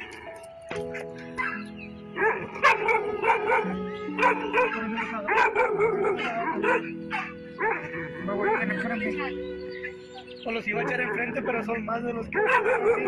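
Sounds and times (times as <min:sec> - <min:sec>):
background music with held notes: 0:00.0 - 0:13.0
dog barking: 0:00.9 - 0:09.0, 0:10.8 - 0:11.7, 0:12.3 - 0:13.0.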